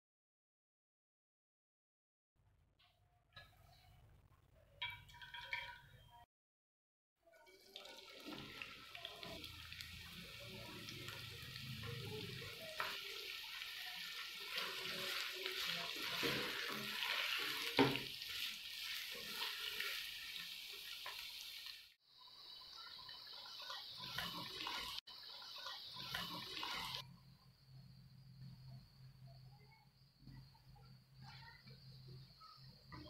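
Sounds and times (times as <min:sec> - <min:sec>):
onions sizzling in oil: 0:07.4 - 0:27.0
spatula stirring: 0:12.6 - 0:21.2.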